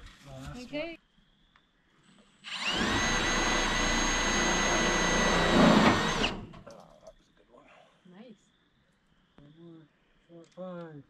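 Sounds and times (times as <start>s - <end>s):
power drill driving screw into metal: 2.4s - 6.6s.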